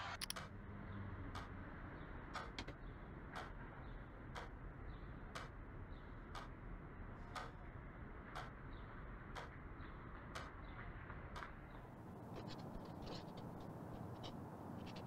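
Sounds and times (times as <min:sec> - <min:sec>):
clock ticking: 0:00.2 - 0:00.6, 0:01.3 - 0:01.6, 0:02.2 - 0:06.6, 0:07.2 - 0:15.0.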